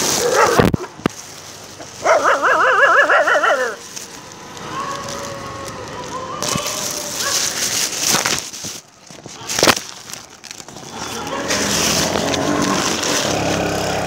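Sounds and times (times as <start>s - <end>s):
dog yelping: 0.1s - 0.9s, 2.0s - 3.8s.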